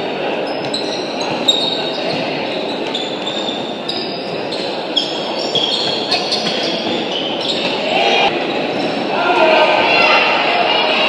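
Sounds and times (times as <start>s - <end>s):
din of players and spectators: 0.0s - 11.0s
shoes squeaking on floor: 0.4s - 9.0s.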